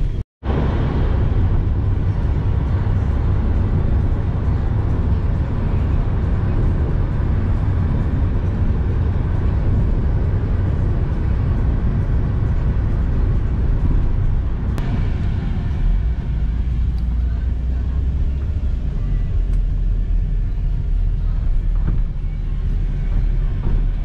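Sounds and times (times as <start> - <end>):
road and engine rumble in van: 0.0 - 24.0.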